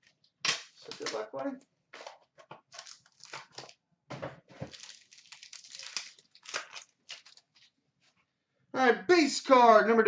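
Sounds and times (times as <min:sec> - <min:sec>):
plastic wrapper crinkling and tearing: 0:00.0 - 0:01.5, 0:02.7 - 0:03.8, 0:04.6 - 0:07.8.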